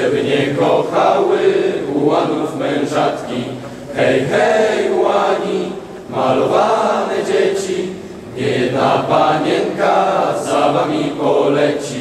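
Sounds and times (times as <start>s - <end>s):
group singing in unison: 0.0s - 12.0s.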